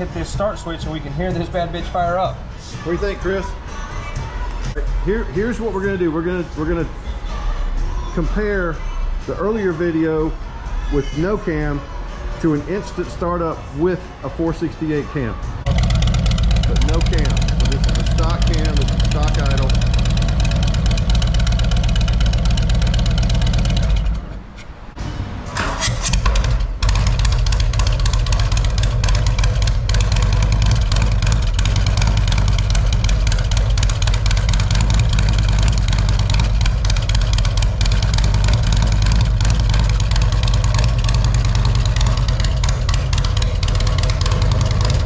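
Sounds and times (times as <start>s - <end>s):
motorcycle engine idling: 15.6s - 24.4s, 26.2s - 45.0s
motorcycle engine starting: 15.6s - 45.0s.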